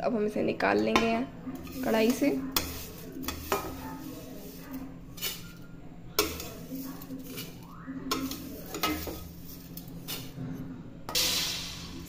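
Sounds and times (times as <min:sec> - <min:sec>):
ladle scraping metal pot: 0:00.7 - 0:10.5, 0:11.1 - 0:12.0.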